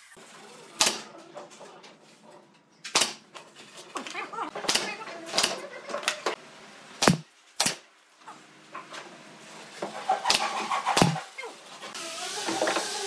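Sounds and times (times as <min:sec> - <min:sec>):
sharp knocks on wood: 0:07.0 - 0:07.3.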